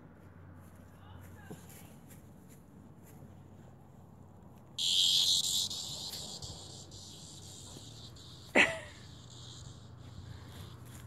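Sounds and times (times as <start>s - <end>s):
cicada buzzing: 4.8s - 11.0s
sharp cry dropping in pitch: 4.8s - 11.0s.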